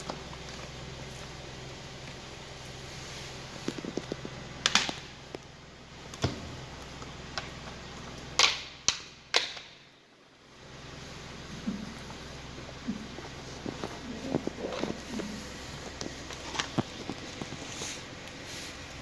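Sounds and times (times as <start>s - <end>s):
steady low hum: 0.0s - 19.0s
boots crunching raw chicken: 11.5s - 19.0s.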